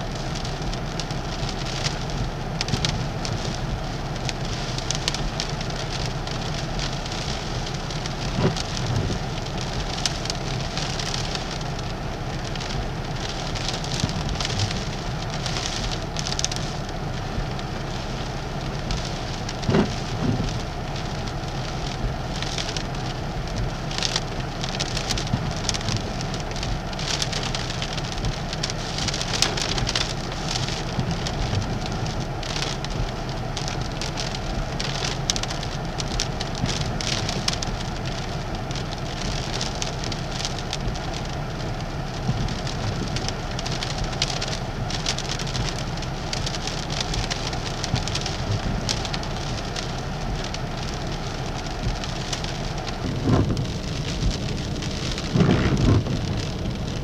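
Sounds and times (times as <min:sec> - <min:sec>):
gusts crackling on microphone: 0:00.0 - 0:57.0
rain: 0:00.0 - 0:57.0
roaring wind: 0:00.0 - 0:57.0
rough surf: 0:52.7 - 0:57.0.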